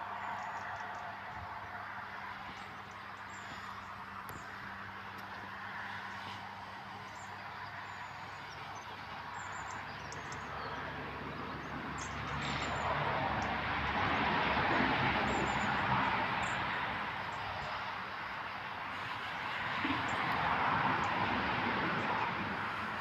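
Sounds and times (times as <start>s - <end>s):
vehicle passing on road: 0.0s - 23.0s
small birds chirping: 7.0s - 12.9s.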